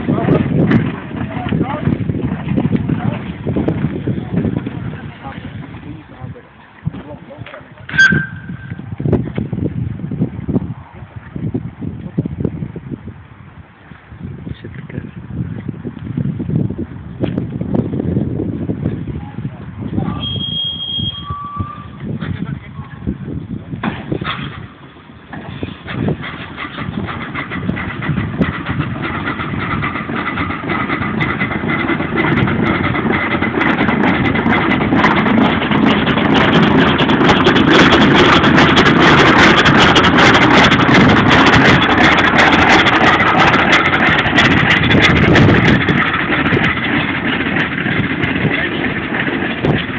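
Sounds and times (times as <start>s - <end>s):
steam locomotive hissing and chuffing: 24.0s - 49.9s.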